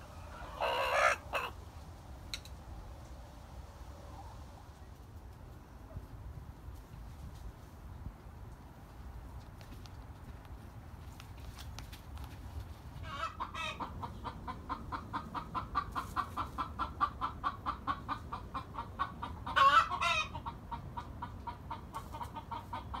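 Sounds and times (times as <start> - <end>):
chicken calls: 0.0 - 1.6, 12.9 - 23.0
chickens clucking: 0.0 - 2.7, 12.3 - 23.0.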